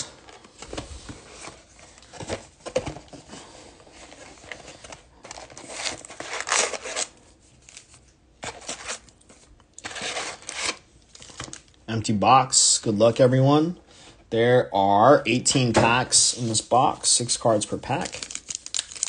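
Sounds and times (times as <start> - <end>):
foil packs rustling and crinkling: 0.0 - 9.1, 17.4 - 19.0.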